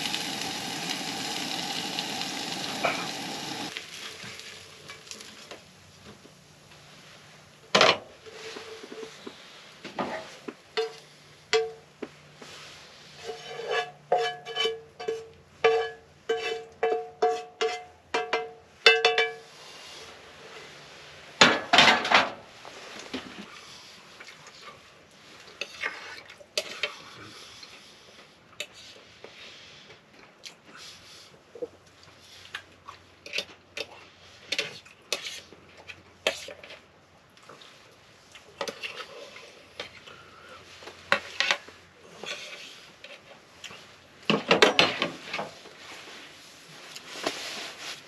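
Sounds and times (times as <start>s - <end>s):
scrape on pan: 8.2s - 11.1s, 12.4s - 17.9s, 25.6s - 27.0s, 34.2s - 36.8s, 38.6s - 40.0s, 41.1s - 43.3s, 47.0s - 48.0s
cutlery clinking on plate: 13.7s - 19.4s
metal utensil tapping frying pan: 14.1s - 19.5s.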